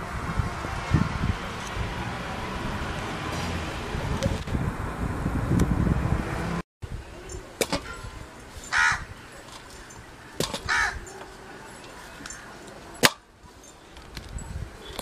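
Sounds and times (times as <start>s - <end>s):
crow cawing: 8.7s - 9.1s, 10.2s - 11.1s.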